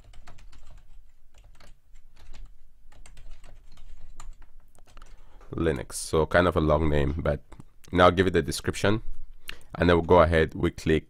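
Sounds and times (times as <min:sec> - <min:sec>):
typing on computer keyboard: 0:00.0 - 0:05.3.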